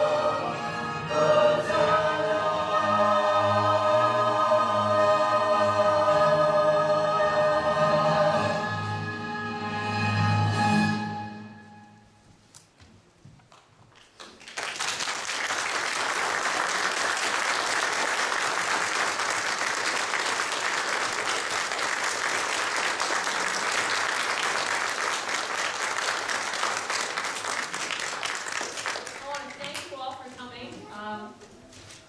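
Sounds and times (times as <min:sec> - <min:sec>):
audience applause: 0:14.0 - 0:29.9.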